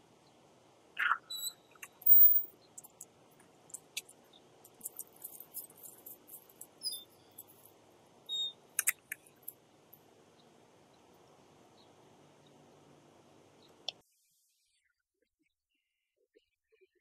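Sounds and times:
short high squeaks: 0:01.0 - 0:02.5.

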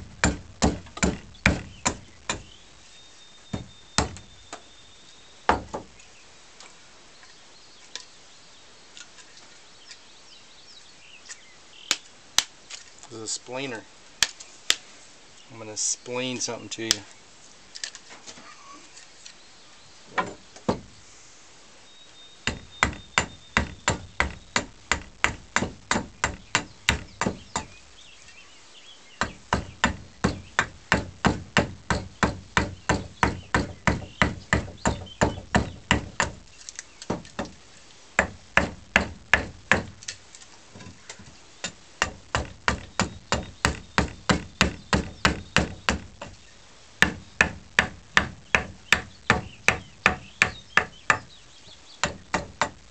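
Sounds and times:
hatchet chopping into wood: 0:00.2 - 0:02.5, 0:03.6 - 0:04.3, 0:05.5 - 0:05.9, 0:20.2 - 0:20.9, 0:22.5 - 0:27.8, 0:29.2 - 0:36.4, 0:37.1 - 0:37.6, 0:38.2 - 0:40.2, 0:41.6 - 0:46.3, 0:47.0 - 0:51.3, 0:52.0 - 0:52.8.

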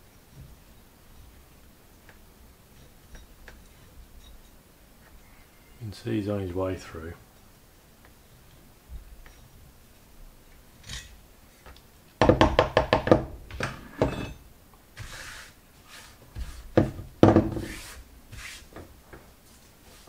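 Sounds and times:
metal parts knocking on workbench: 0:12.2 - 0:14.4.

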